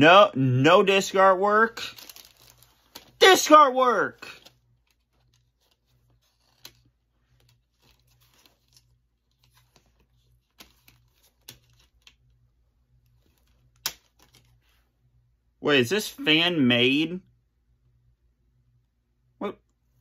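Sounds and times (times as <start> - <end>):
faint low hum: 4.1 - 20.0.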